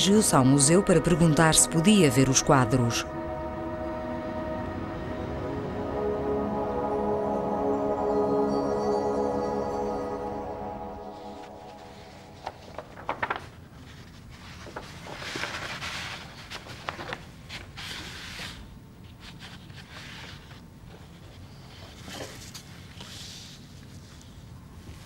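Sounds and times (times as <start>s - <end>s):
rustling: 11.2s - 25.0s.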